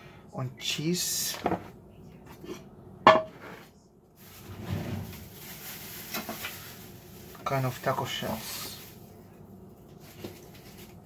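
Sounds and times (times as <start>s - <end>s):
handling and rustling: 4.2s - 11.0s
plastic container sliding on wood: 4.4s - 5.2s.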